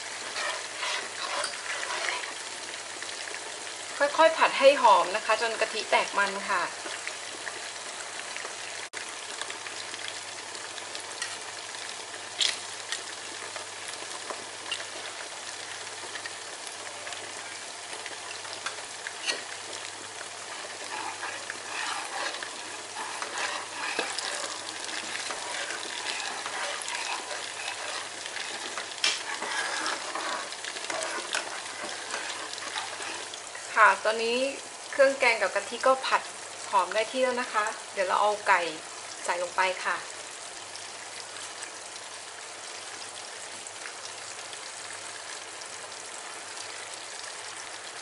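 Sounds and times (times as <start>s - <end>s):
metal spoon scraping a pan: 0.0s - 2.5s, 14.2s - 15.1s, 18.4s - 33.7s
paste sizzling in a pan: 0.0s - 43.5s.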